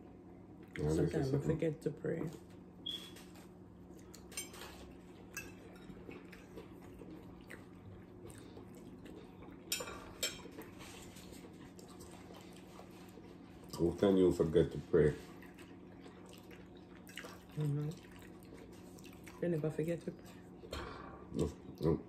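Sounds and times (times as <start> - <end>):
forks clinking on plates: 4.3 - 6.1, 9.7 - 10.8.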